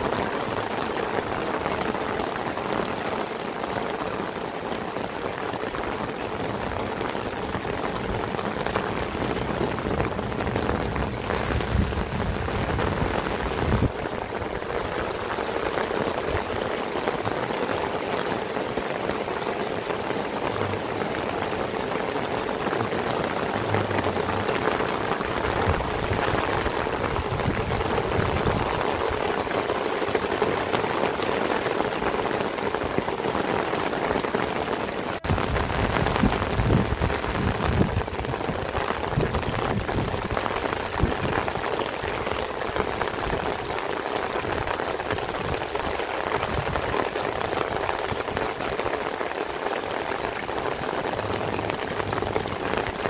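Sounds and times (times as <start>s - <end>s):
heavy rain falling: 0.0s - 53.0s.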